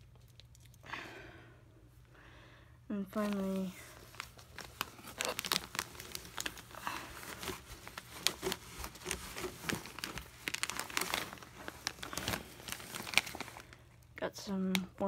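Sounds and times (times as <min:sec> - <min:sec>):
cardboard rustling: 0:03.2 - 0:13.8
plastic bag crinkling: 0:03.2 - 0:14.2.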